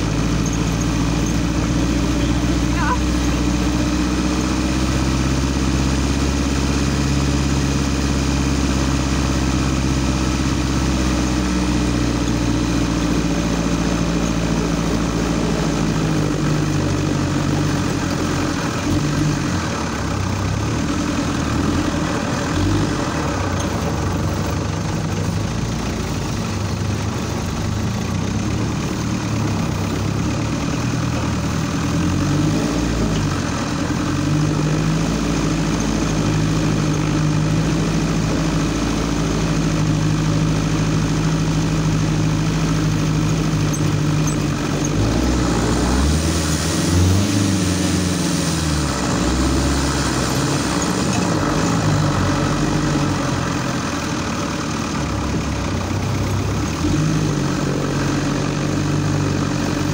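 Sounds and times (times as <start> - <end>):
off-road vehicle engine running: 0.0 - 59.9.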